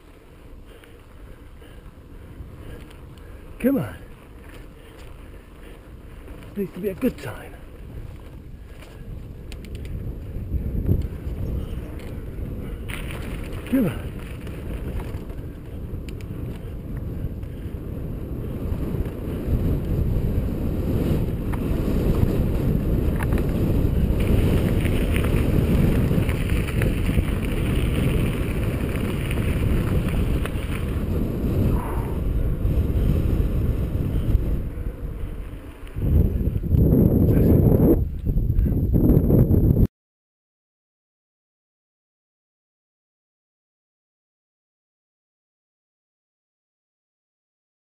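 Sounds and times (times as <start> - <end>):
wind buffeting microphone: 0.0 - 39.9
tyres rolling over gravel: 12.8 - 15.7, 23.0 - 31.5.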